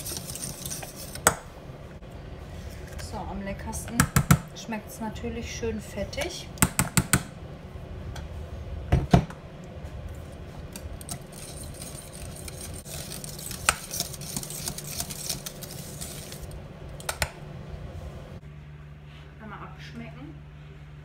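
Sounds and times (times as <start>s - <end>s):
whisk scraping in metal pot: 0.0s - 1.3s, 11.0s - 16.6s.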